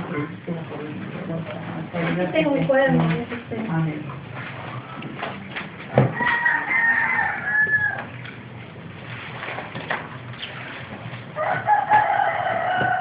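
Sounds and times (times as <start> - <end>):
rooster crowing: 6.1 - 8.2, 11.4 - 13.0.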